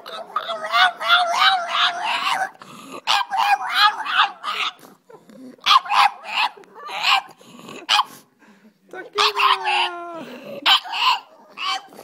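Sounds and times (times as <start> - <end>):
dog howling: 0.0 - 4.8, 9.2 - 11.9.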